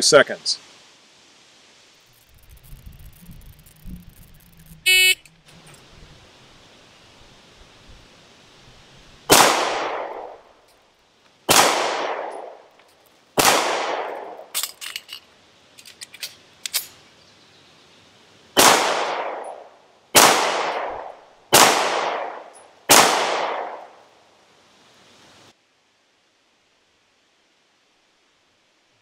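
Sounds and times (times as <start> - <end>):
pistol shots: 9.3 - 10.3, 11.5 - 12.5, 13.4 - 14.4, 18.6 - 19.6, 20.2 - 23.8
metallic magazine reload clicks: 14.5 - 15.2, 15.8 - 17.0.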